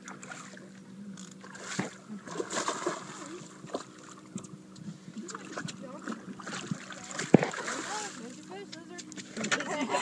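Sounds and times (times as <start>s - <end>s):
steady low hum: 0.0s - 10.0s
water splashing beside boat: 0.0s - 10.0s.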